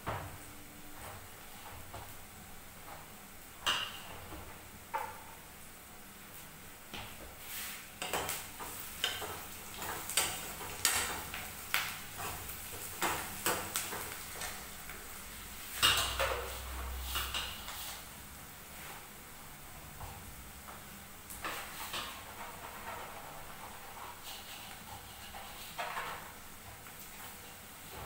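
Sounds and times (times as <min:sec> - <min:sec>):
dough worked in steel tray: 0:06.4 - 0:28.0
metal spoon stirring in frying pan: 0:07.5 - 0:19.1, 0:21.3 - 0:27.7.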